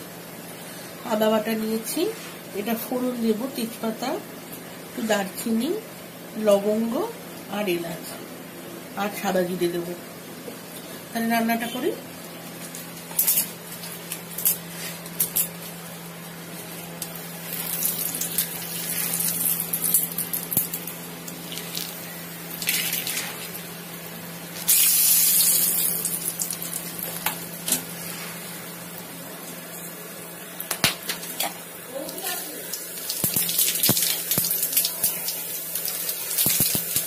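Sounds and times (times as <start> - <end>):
spices sizzling in hot oil: 13.1 - 29.0, 31.3 - 37.0.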